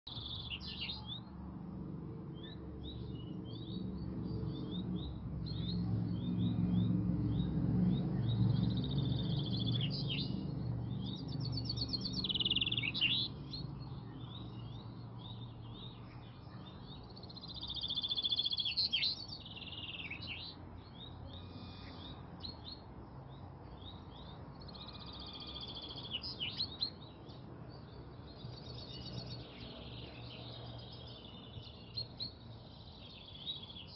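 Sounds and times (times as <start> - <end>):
chaffinches singing trills: 0.1 - 33.9
bird twittering: 11.0 - 13.6.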